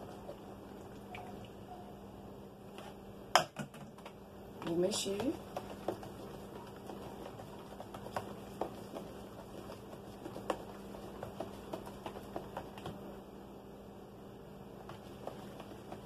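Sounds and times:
plastic spoon stirring in a jug: 0:04.6 - 0:13.0, 0:14.8 - 0:16.0.

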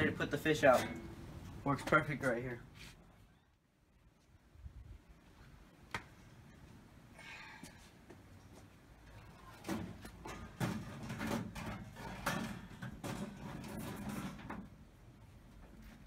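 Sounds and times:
wire racks clinking on metal: 0:00.0 - 0:02.0, 0:09.1 - 0:14.7.

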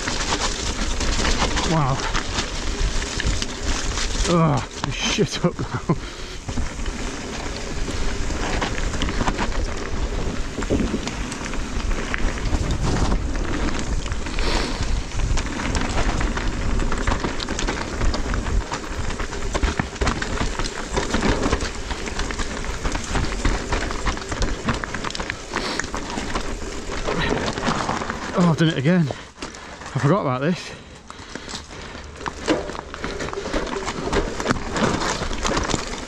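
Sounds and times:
wind rumbling on microphone: 0:00.0 - 0:28.8
bike knocks and rattles: 0:00.0 - 0:30.0, 0:31.2 - 0:36.0
bike tyres crunching over loose stone: 0:00.0 - 0:36.0.

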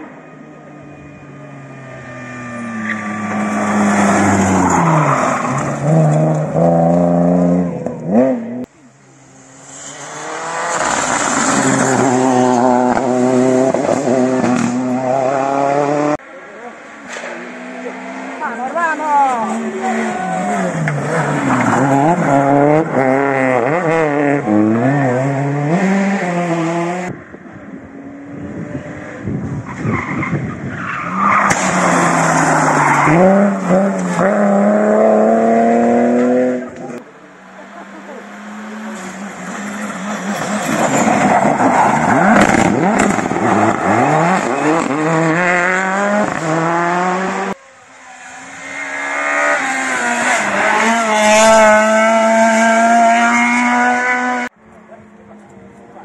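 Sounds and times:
rally car engines revving: 0:00.0 - 0:56.0.

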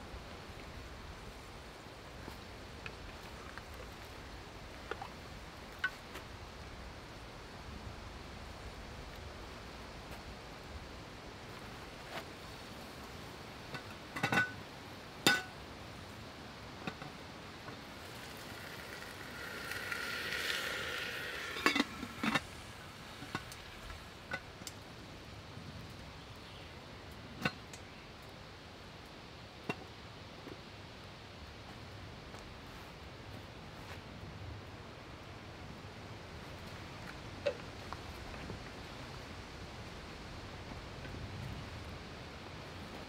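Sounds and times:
metal cookware clinking: 0:13.8 - 0:14.6, 0:15.3 - 0:15.6
metal cookware scraping: 0:18.3 - 0:24.4.

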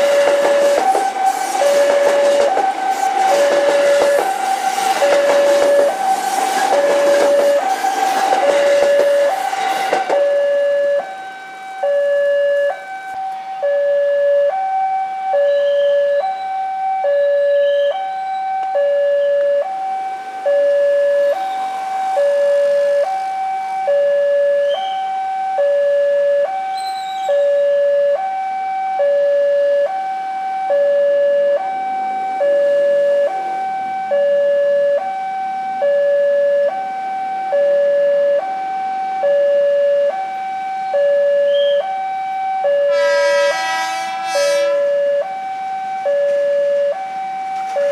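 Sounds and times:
train rumbling past: 0:00.0 - 0:12.9, 0:19.6 - 0:23.9
two-tone level crossing alarm: 0:00.0 - 0:47.9.

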